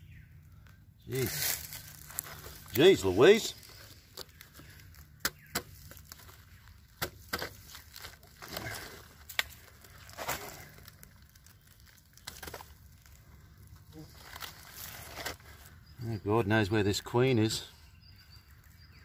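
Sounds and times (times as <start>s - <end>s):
crumbly wood crackling and crunching: 0.0s - 19.0s.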